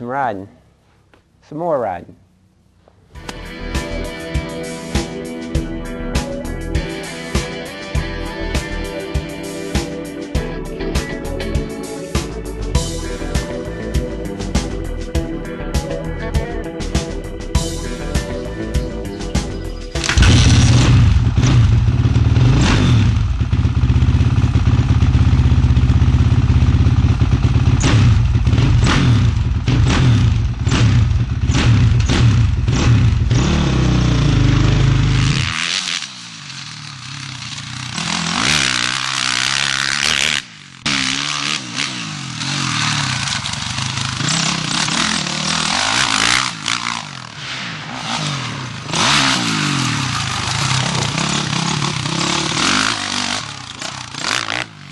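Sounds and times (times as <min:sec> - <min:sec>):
dirt bike engine revving: 0:20.0 - 0:54.9.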